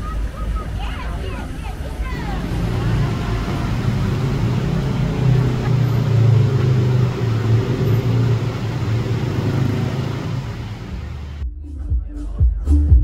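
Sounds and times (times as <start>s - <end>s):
constant rushing noise: 0.0s - 11.4s
motor engine droning: 2.0s - 11.4s.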